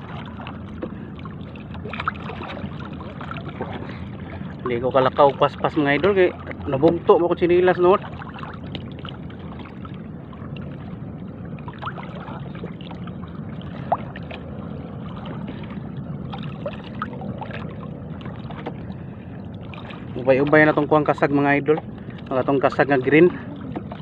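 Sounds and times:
small splashes: 0.0 - 7.1, 8.0 - 10.9, 11.6 - 21.2
water sloshing around wading legs: 0.0 - 24.0.

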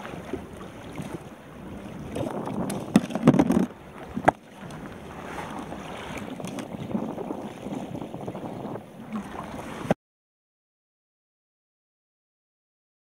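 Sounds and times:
water washing against kayak hull: 0.0 - 10.0
wind on microphone: 0.0 - 10.0
knocks in kayak: 2.0 - 10.0.

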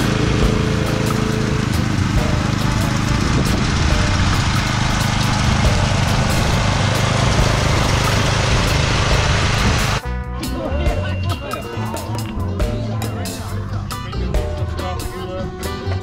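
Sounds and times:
power trowel engine running: 0.0 - 10.0.

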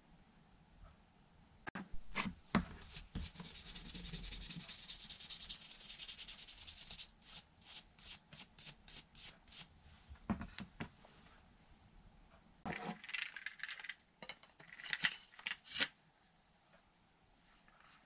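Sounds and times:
brush scrubbing wood: 2.8 - 7.8.

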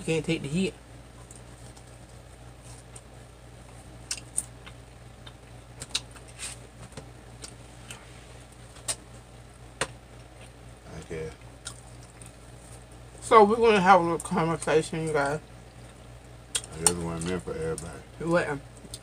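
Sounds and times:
steady low hum: 0.0 - 19.0
chewing fried food: 1.1 - 9.2, 10.1 - 13.2, 14.1 - 18.0.

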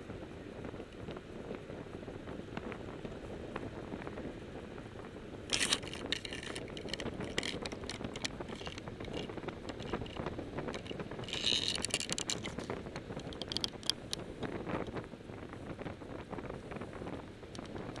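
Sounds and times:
sharp crackling and rattling: 5.5 - 15.0.

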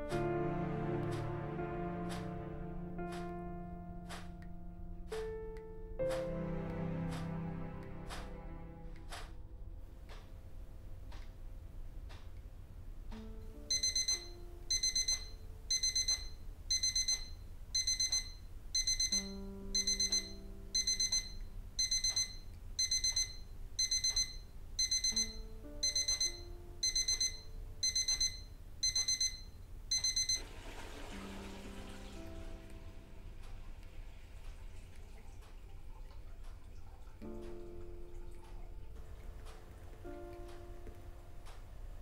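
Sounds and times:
low sustained music notes: 0.0 - 11.8, 37.0 - 42.0
alarm clock beeping: 13.6 - 30.4.

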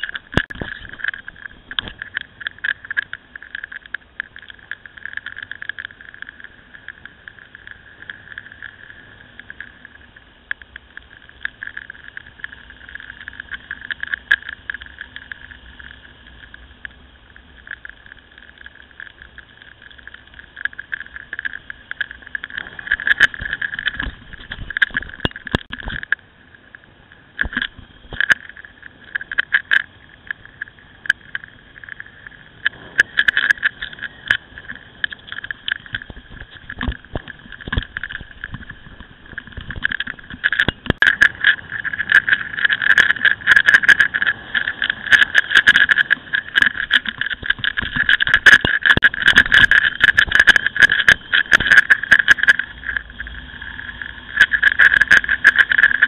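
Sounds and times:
wind and road rush: 0.0 - 56.0
sharp knocks and rattles: 17.6 - 26.2, 32.7 - 53.0.

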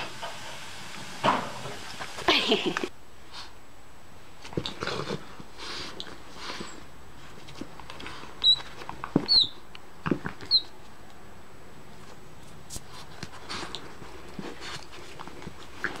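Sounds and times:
squeaky toy squeaks: 9.3 - 9.6.

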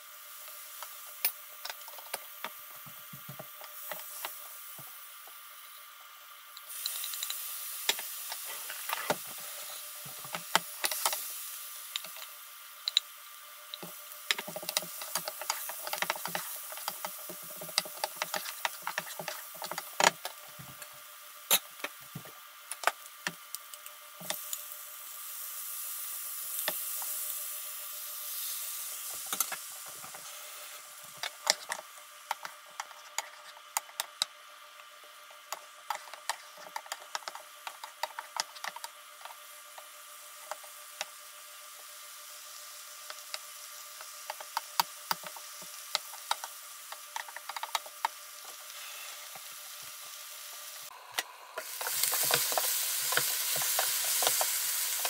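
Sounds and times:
food sizzling in a frying pan: 0.0 - 55.0.

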